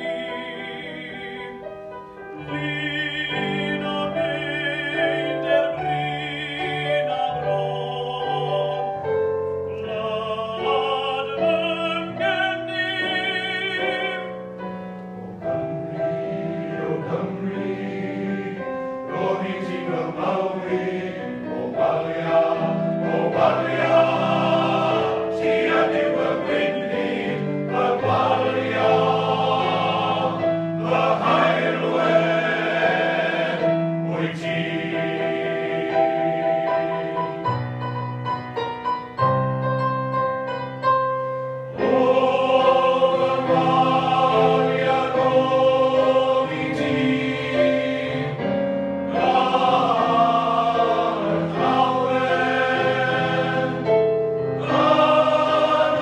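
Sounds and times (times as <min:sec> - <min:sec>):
male voice choir singing: 0:02.4 - 0:09.0, 0:09.8 - 0:14.5, 0:15.9 - 0:37.2, 0:41.8 - 0:48.5, 0:49.1 - 0:56.0.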